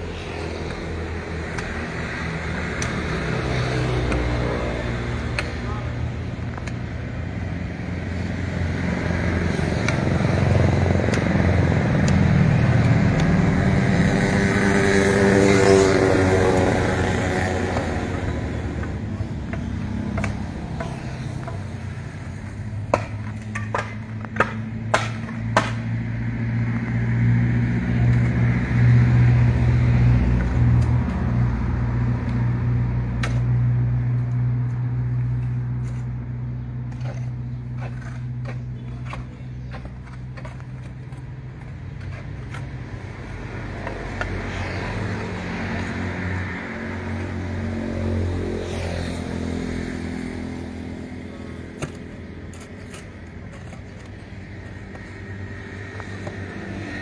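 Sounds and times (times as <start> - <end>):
vehicle engine humming: 0.0 - 57.0.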